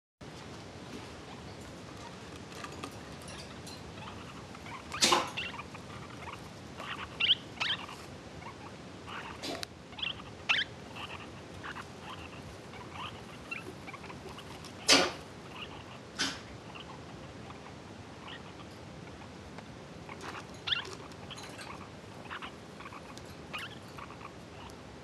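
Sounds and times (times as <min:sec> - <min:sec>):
parakeet chicks squeaky chirps: 0:01.2 - 0:19.4, 0:20.0 - 0:24.8.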